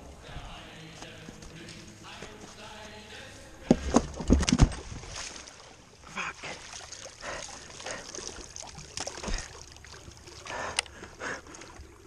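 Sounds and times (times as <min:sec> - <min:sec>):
footsteps splashing through water: 0:03.8 - 0:05.8, 0:06.4 - 0:11.9.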